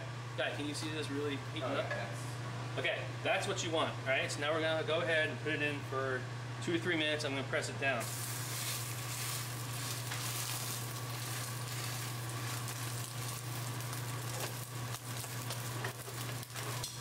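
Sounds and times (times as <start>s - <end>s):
steak sizzling in a skillet: 8.0s - 17.0s.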